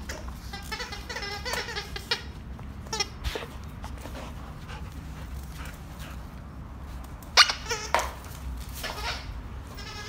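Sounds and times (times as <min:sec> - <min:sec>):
dog toy squeaker: 0:00.0 - 0:03.2, 0:07.4 - 0:10.0.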